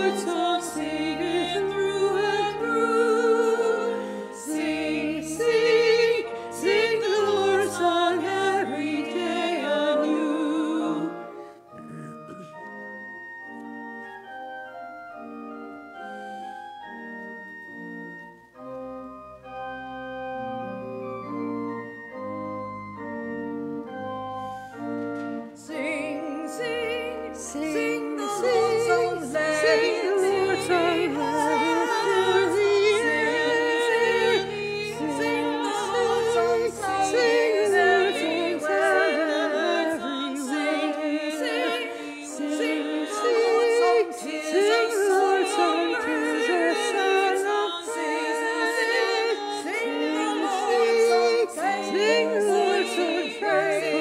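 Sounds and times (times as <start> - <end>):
women's ensemble singing: 0.0 - 11.3, 25.5 - 54.0
organ chords: 0.0 - 54.0.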